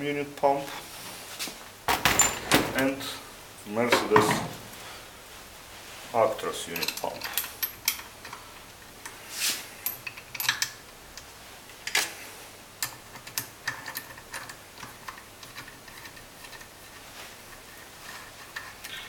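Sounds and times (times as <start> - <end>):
metal tools clicking and clinking: 1.9 - 2.9, 6.7 - 8.4, 9.8 - 10.8.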